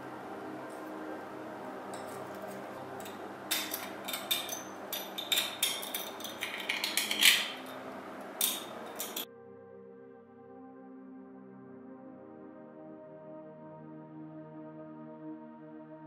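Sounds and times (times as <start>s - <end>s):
metal tool scraping rusted tin: 1.9s - 7.8s, 8.4s - 9.2s.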